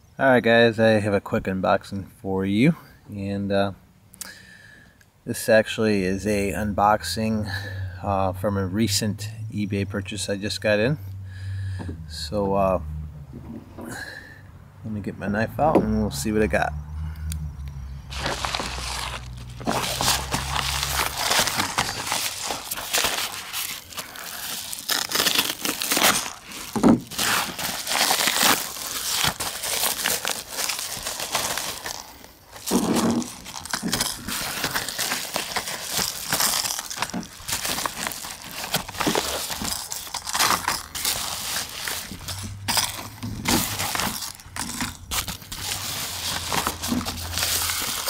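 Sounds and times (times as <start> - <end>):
paper mailer crinkling and tearing: 18.1 - 48.0
plastic blister packs rustling: 18.1 - 48.0.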